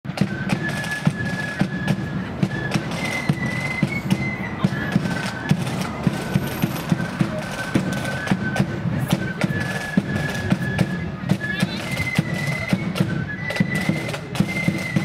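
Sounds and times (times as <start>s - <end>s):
flutes playing melody: 0.1s - 15.0s
rattling side drums: 0.1s - 15.0s.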